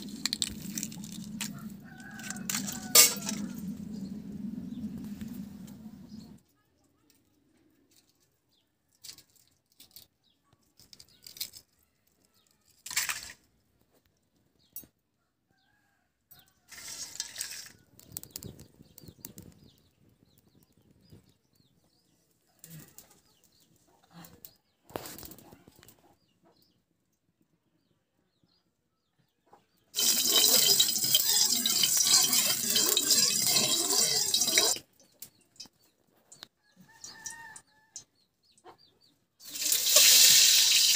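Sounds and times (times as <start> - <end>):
sizzling in a hot pan: 30.0 - 34.8, 39.4 - 40.9.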